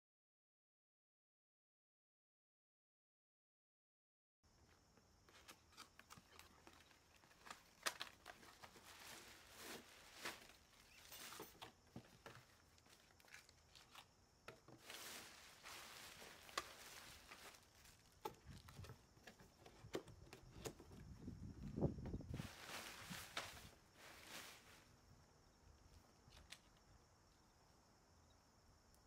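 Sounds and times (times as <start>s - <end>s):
packaging rustling and crinkling: 5.3s - 19.8s, 22.3s - 24.8s.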